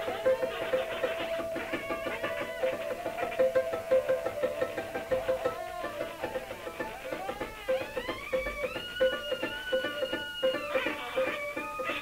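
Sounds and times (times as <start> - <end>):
quick plucked notes: 0.0 - 12.0.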